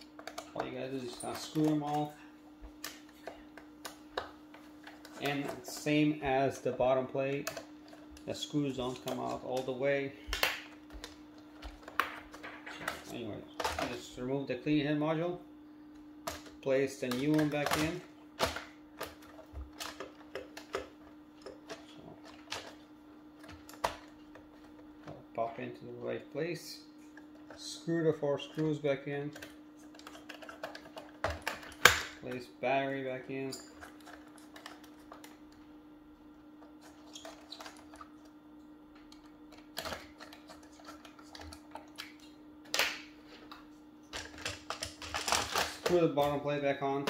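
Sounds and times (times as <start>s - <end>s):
faint steady hum: 0.0s - 47.0s
plastic parts clattering: 29.3s - 32.2s, 44.1s - 46.4s.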